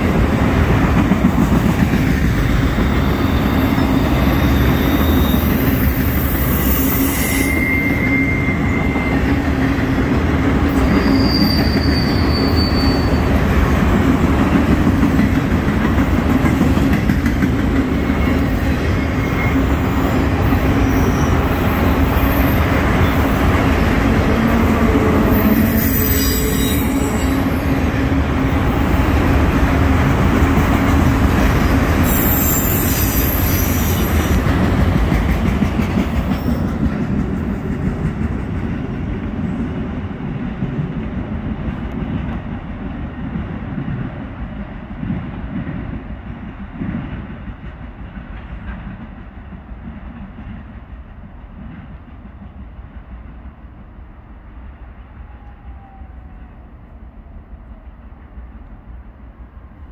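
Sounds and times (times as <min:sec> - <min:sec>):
train wheels rumbling on rails: 0:00.0 - 0:59.9
high-pitched wheel squeals: 0:02.9 - 0:09.4, 0:10.9 - 0:13.3, 0:25.3 - 0:27.6, 0:32.0 - 0:34.2.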